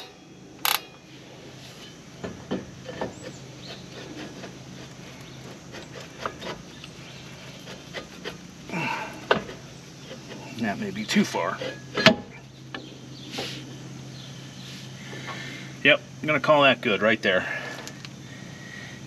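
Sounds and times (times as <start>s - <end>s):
brake shoes scraping drum: 1.4s - 15.7s.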